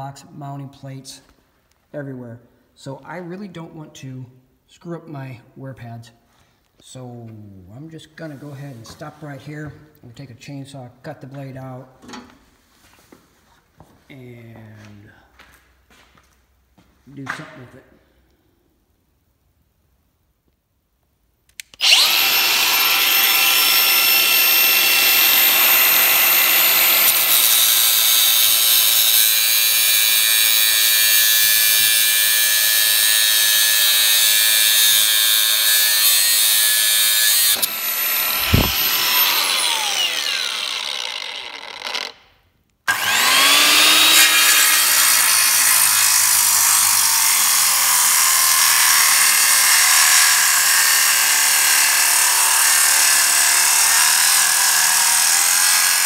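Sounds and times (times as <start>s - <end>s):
angle grinder cutting steel: 21.6s - 42.2s, 42.9s - 56.0s
circular saw cutting wood: 21.6s - 42.2s, 42.9s - 56.0s
thud: 38.4s - 39.2s.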